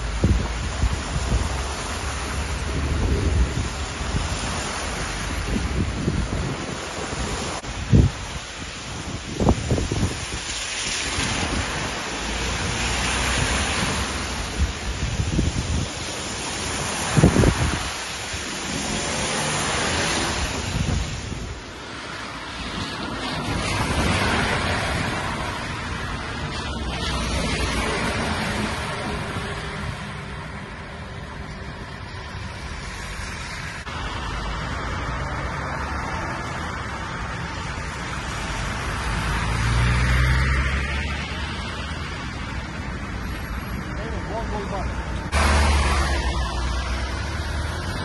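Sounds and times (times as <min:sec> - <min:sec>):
floodwater rushing: 0:00.0 - 0:48.0
rain falling: 0:00.0 - 0:48.0
tyres splashing through water: 0:00.0 - 0:48.0
wind rumbling on microphone: 0:00.0 - 0:48.0.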